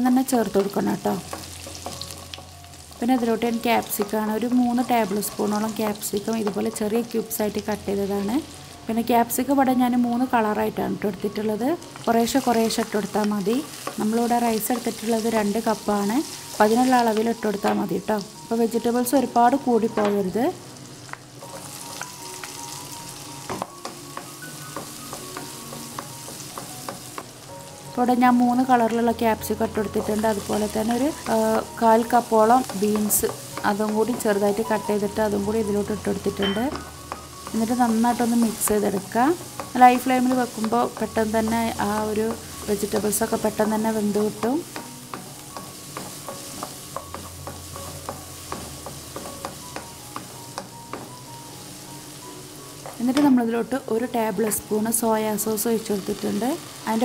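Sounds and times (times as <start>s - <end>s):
vegetables sizzling in oil: 0.0s - 57.0s
wooden spatula tapping a pan: 0.6s - 2.4s, 19.9s - 20.2s, 23.4s - 27.4s, 29.6s - 51.3s.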